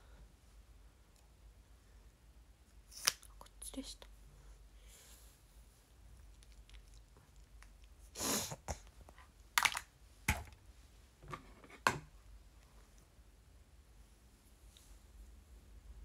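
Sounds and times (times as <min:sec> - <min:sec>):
small objects clicking and knocking: 0:09.6 - 0:10.6.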